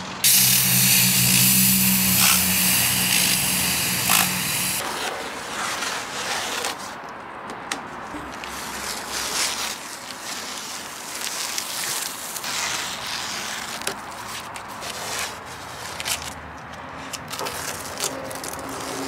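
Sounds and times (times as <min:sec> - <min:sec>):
masking tape ripping off: 0:00.2 - 0:04.8.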